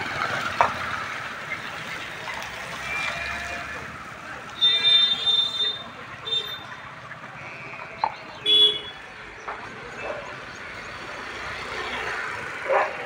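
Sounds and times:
outdoor noise: 0.0s - 13.0s
sheep bleating: 2.9s - 3.9s
vehicle passing: 9.7s - 13.0s.

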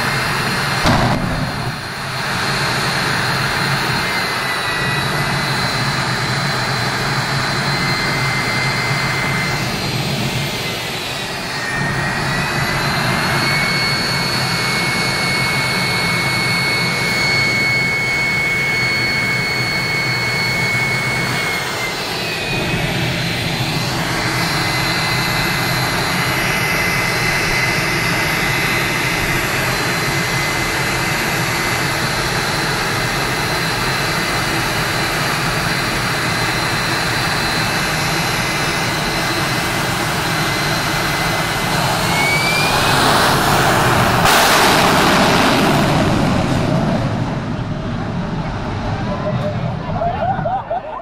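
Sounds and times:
turbine engine high whine: 0.0s - 51.0s
loud jet rushing blast: 0.5s - 4.8s, 40.8s - 49.6s.

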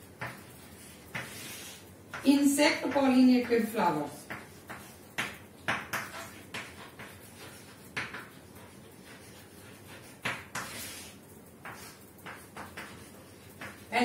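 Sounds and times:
chalk tapping and scraping: 0.0s - 14.0s.

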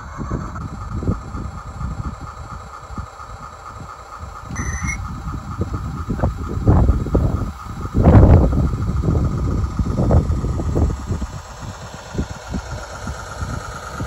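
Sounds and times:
model locomotive whine: 0.0s - 14.0s
short high chirp: 4.5s - 5.1s.

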